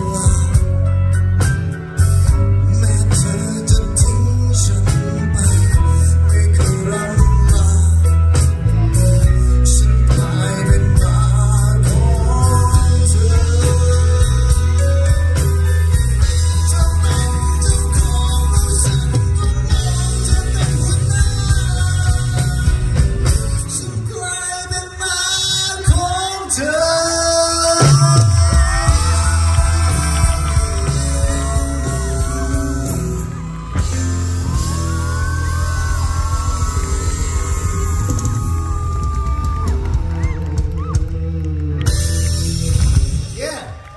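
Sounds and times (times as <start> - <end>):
man singing into a microphone: 0.0 - 33.4
live rock band: 0.0 - 43.9
crowd whooping: 27.8 - 43.9.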